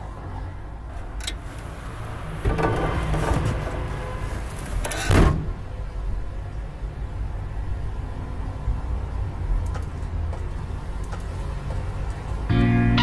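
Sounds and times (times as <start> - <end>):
car rear hatch slamming shut: 5.0 - 5.6.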